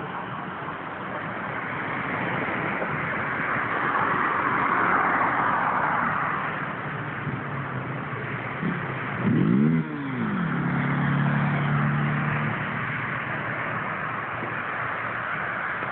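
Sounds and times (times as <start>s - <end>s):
car passing by: 1.6s - 6.7s, 9.2s - 15.9s.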